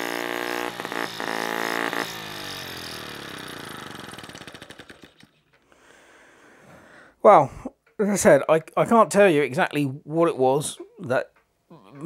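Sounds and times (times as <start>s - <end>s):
model engine running and coasting down: 0.0s - 5.6s.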